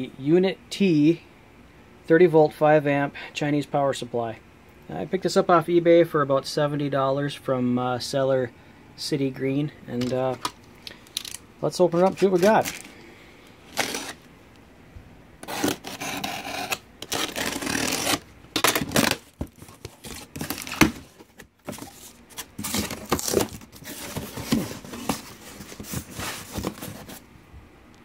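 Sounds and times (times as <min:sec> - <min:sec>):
cardboard and plastic rustling: 0:09.9 - 0:13.0, 0:13.6 - 0:14.3, 0:15.4 - 0:27.3
knife cutting packing tape: 0:12.0 - 0:12.9, 0:13.7 - 0:14.2, 0:15.4 - 0:27.1.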